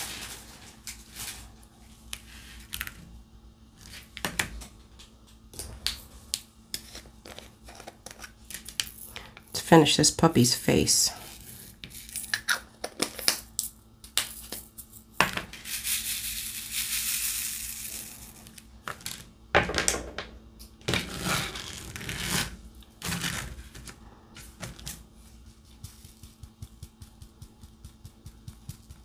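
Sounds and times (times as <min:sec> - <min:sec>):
beads rattling in plastic tray: 0:15.6 - 0:19.0.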